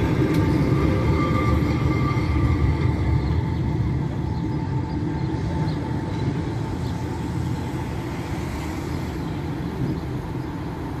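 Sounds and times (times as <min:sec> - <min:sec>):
street noise rumble: 0:00.0 - 0:11.0
tram rolling away: 0:00.0 - 0:11.0.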